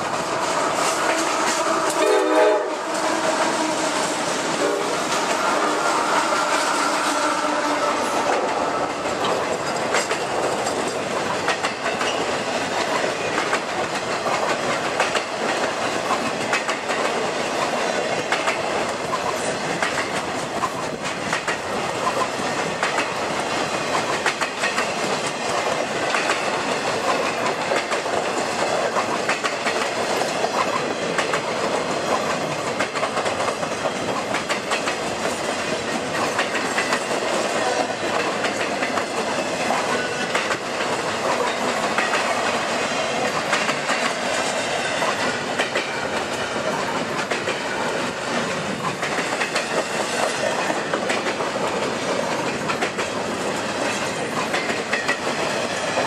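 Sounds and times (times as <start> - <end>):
freight train rolling past: 0.0 - 56.0
wheels clacking over rail joints: 0.0 - 56.0.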